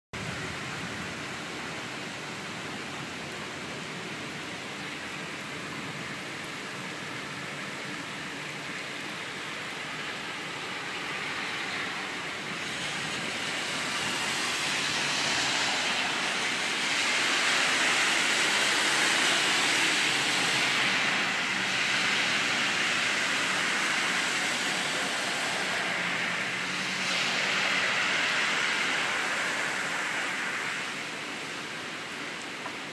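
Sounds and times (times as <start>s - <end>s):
cars driving through floodwater: 0.2s - 32.9s
heavy rain: 0.2s - 32.9s.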